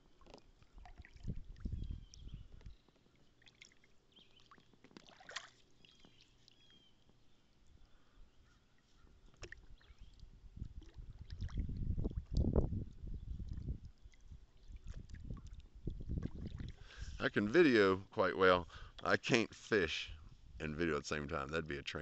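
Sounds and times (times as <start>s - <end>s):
small splashes and clicks: 0.0s - 7.2s, 9.0s - 16.8s
low rumble on microphone: 1.2s - 2.7s, 10.4s - 17.2s.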